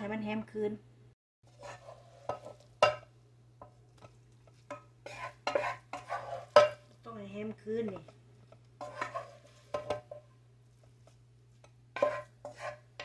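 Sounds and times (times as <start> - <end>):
spoon scraping a bowl: 1.5 - 6.8, 8.0 - 10.2, 10.8 - 13.0.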